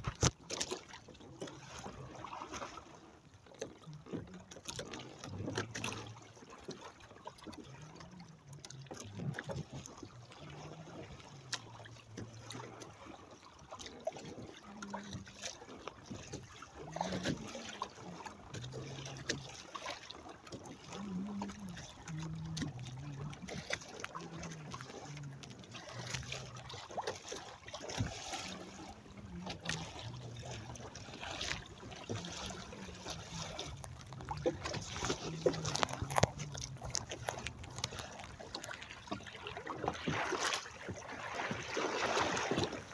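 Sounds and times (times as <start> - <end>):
water lapping against hull: 0.0 - 42.9
low wavering hum: 20.8 - 27.0, 28.0 - 39.7.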